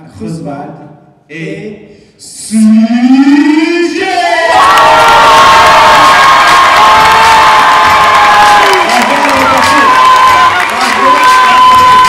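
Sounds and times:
high-pitched held shouts: 0:03.7 - 0:12.0
crowd cheering: 0:04.0 - 0:12.0.

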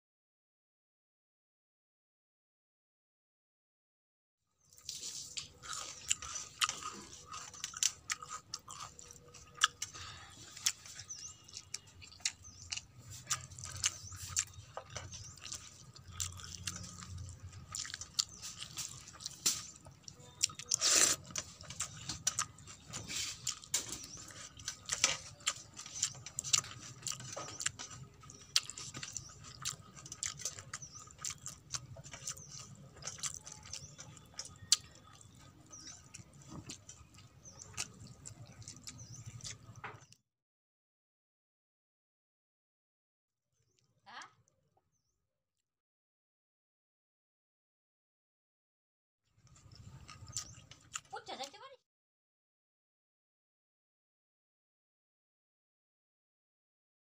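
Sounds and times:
crunchy chewing: 0:04.7 - 0:40.2, 0:49.4 - 0:51.5
fingers squishing wet rice: 0:04.8 - 0:39.8.

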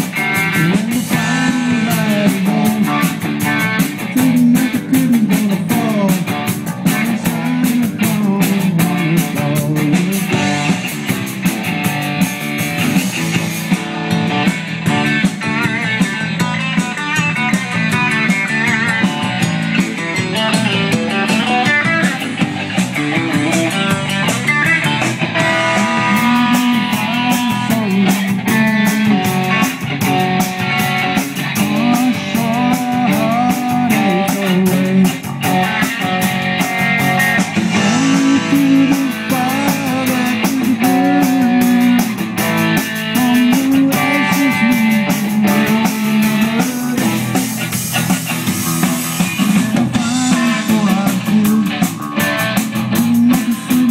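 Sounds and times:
bass guitar: 0:00.0 - 0:53.9
drum kit with cymbals: 0:00.0 - 0:53.9
electric guitar: 0:00.0 - 0:53.9.

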